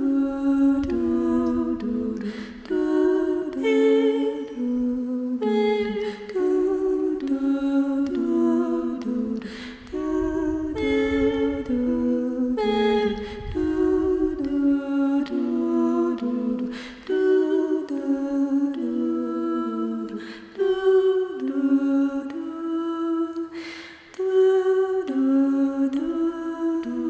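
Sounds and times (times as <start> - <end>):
breaths: 2.2 - 2.7, 9.4 - 9.9, 13.2 - 13.6, 16.6 - 17.1, 20.1 - 20.6, 23.5 - 24.2.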